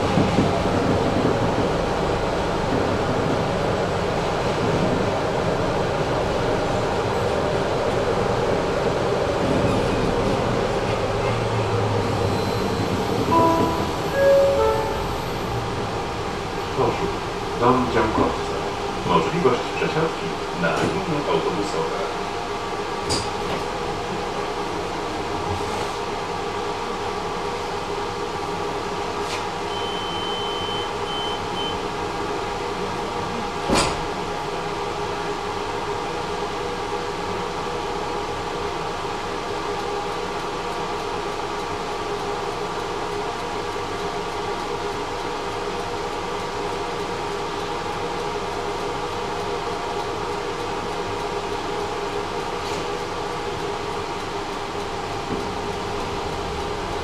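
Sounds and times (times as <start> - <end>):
tram running noise: 0.0 - 57.0
short high beep: 12.3 - 15.2, 29.7 - 31.8.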